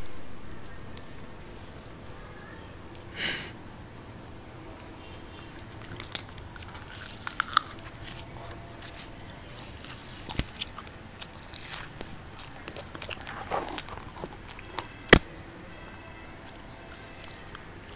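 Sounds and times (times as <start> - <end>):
mouth sounds of eating: 4.6 - 15.2
crinkling plastic: 4.7 - 17.9.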